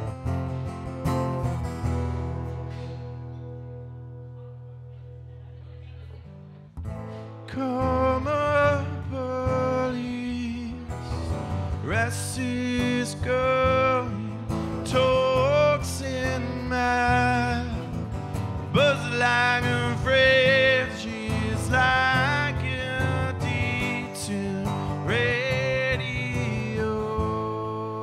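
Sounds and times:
acoustic guitar: 0.0 - 28.0
man singing: 7.4 - 28.0.

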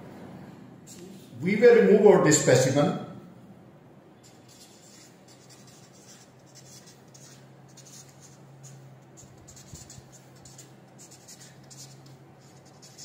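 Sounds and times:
low steady hum: 0.0 - 13.0
marker pen scratching on paper: 4.2 - 13.0.

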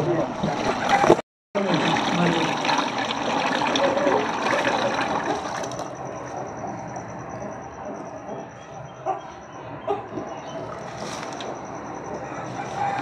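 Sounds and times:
voices: 0.0 - 13.0
paint pouring into bucket: 0.1 - 6.0.

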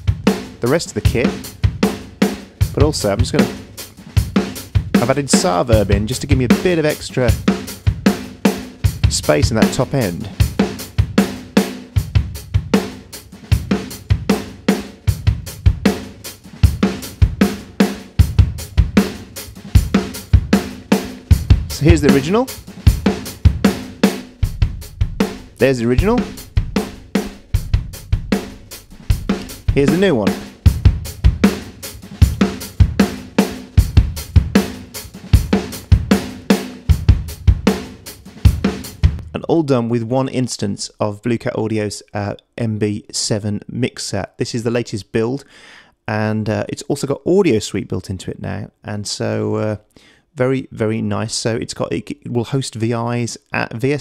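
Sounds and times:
drum kit groove: 0.0 - 39.4.

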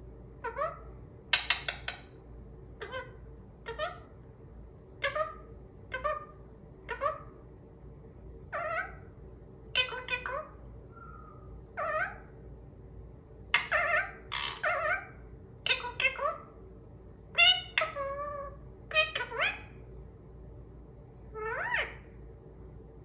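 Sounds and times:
parakeet mimicking words: 0.4 - 2.0, 2.8 - 4.1, 5.0 - 7.4, 8.5 - 9.1, 9.7 - 10.6, 11.8 - 12.3, 13.6 - 16.6, 17.3 - 19.8
parakeet squawking: 0.4 - 2.1, 2.8 - 4.2, 5.0 - 7.4, 8.5 - 9.1, 9.7 - 12.3, 13.5 - 16.6, 17.3 - 19.8, 21.4 - 22.1.

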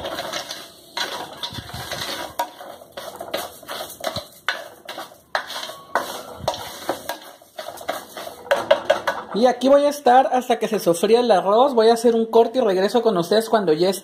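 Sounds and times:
plastic spoon stirring dry rice: 0.0 - 9.2.

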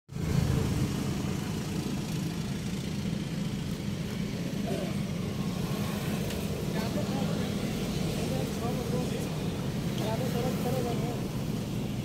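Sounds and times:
engine idling: 0.1 - 12.0.

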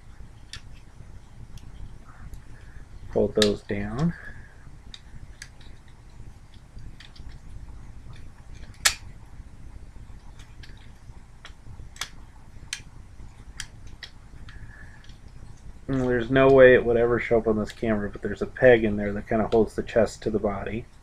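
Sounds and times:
faint low hum: 0.0 - 21.0
plastic toy parts clicking and snapping: 8.1 - 9.0.

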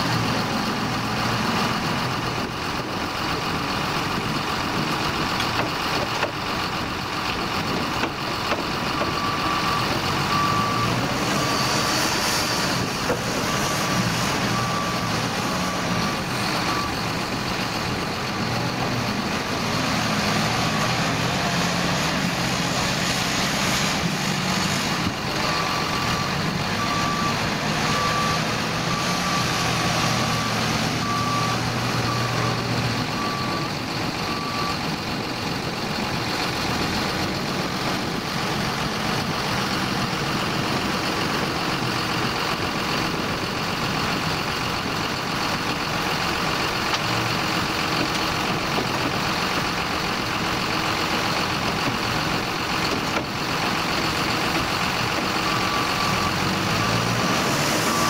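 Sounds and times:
diesel engine working: 0.0 - 58.0
reversing alarm beeping: 0.2 - 23.0, 24.8 - 58.0.

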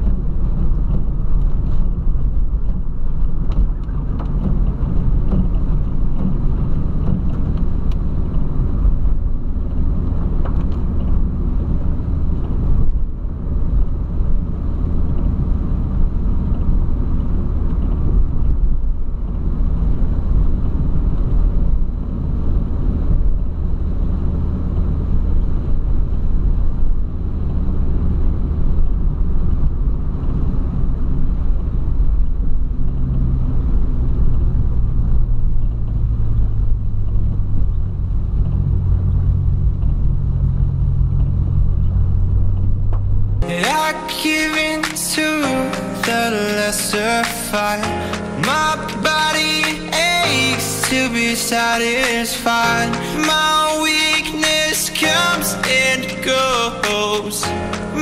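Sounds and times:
car engine and road rumble: 0.0 - 58.0
tyre noise on wet road: 0.0 - 58.0.

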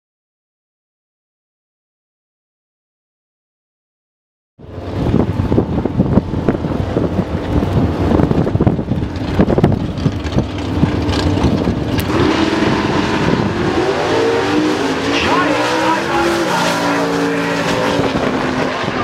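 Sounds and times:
drag car engines revving: 6.5 - 19.0.

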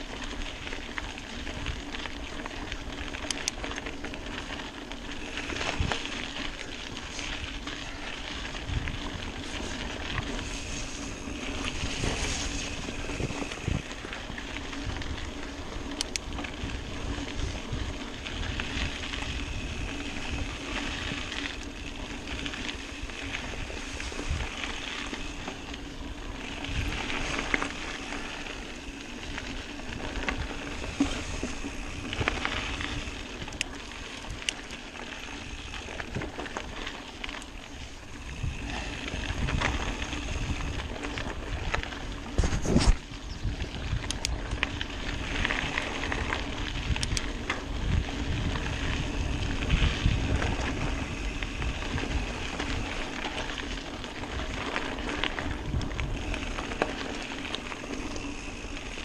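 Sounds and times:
bike rattling: 0.0 - 59.0
bike tyres rolling on dirt: 0.0 - 59.0
wind on the microphone: 6.9 - 25.6, 37.8 - 56.8.

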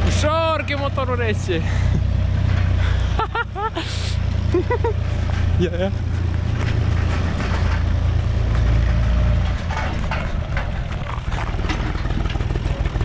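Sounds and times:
sharp rattles: 0.0 - 13.0
tractor diesel engine rumble: 0.0 - 13.0.

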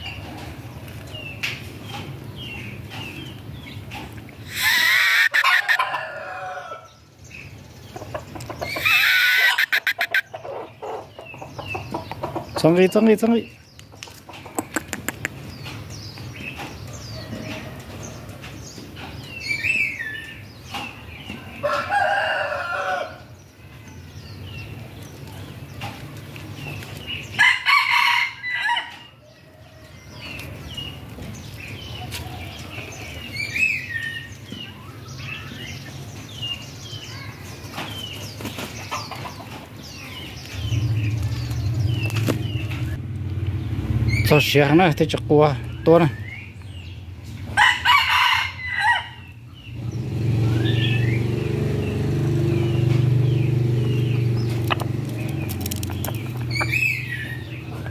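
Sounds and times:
chicks chirping and clucking: 0.0 - 57.9
rooster crowing: 4.5 - 7.0, 21.6 - 23.3, 27.4 - 29.8, 47.6 - 49.2.

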